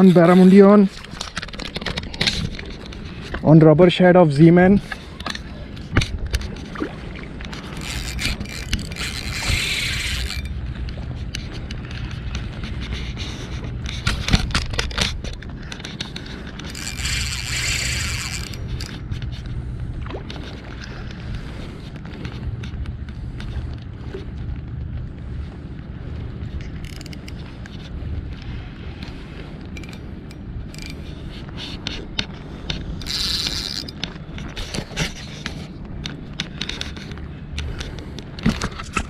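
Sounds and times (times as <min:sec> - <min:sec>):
fishing reel spinning: 0:00.0 - 0:01.7, 0:07.4 - 0:10.7, 0:16.4 - 0:19.4, 0:26.7 - 0:27.4, 0:30.6 - 0:31.0, 0:32.7 - 0:34.8
low steady hum: 0:00.0 - 0:39.0.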